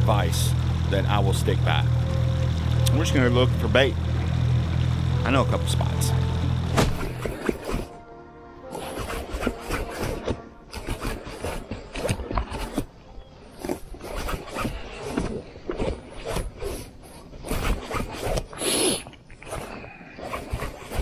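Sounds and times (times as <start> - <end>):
clothing rubbing: 8.7 - 12.9.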